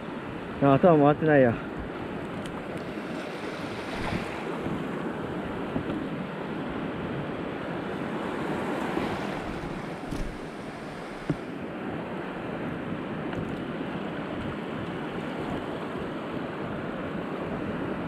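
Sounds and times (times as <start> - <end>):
surf washing over reef: 0.0 - 18.0.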